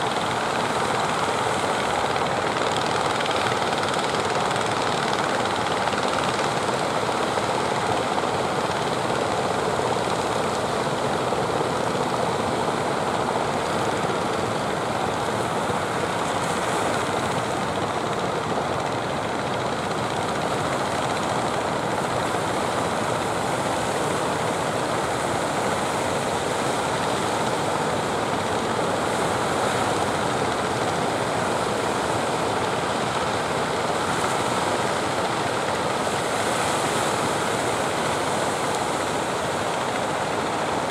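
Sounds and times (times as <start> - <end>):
sea surf: 21.9 - 40.9.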